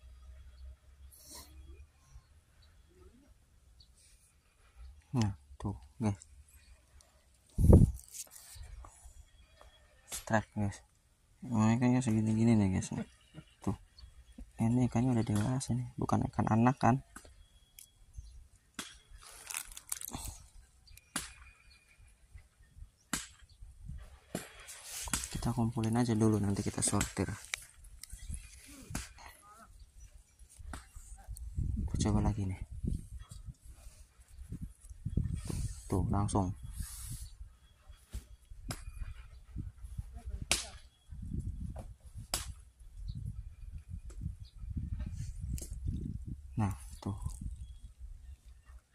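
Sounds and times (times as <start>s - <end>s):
wind buffeting microphone: 7.5s - 8.0s, 29.8s - 37.5s, 38.5s - 48.4s
hands rustling: 19.2s - 20.4s, 24.4s - 29.4s.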